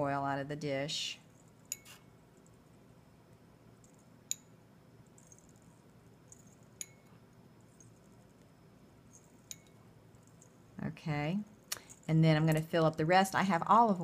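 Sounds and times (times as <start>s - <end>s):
glass dropper clinking on glass dish: 1.6s - 2.0s, 3.9s - 4.5s, 5.2s - 7.2s, 9.1s - 10.6s.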